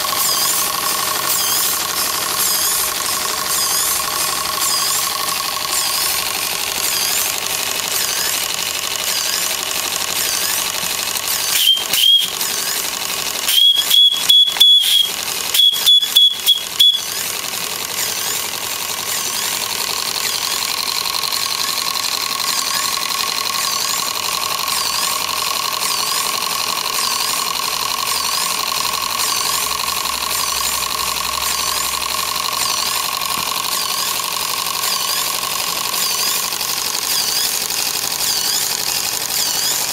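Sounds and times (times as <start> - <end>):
model steam engine running: 0.0 - 39.9
repeating high chirp: 11.3 - 12.4, 13.5 - 17.3
high-pitched steam whistle toots: 11.5 - 12.4, 13.5 - 17.2.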